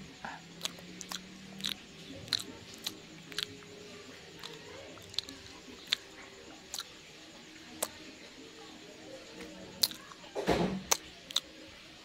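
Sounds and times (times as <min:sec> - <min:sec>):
chewing sticky rice cake: 0:00.0 - 0:12.0
wet mouth clicks and smacks: 0:00.6 - 0:03.6, 0:04.4 - 0:06.9, 0:09.4 - 0:10.0, 0:10.9 - 0:11.5.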